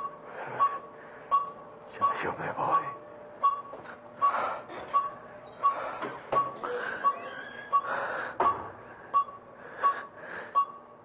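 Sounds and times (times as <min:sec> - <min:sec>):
heart monitor beeping: 0:00.0 - 0:11.0
man gasping breathing: 0:07.8 - 0:10.6.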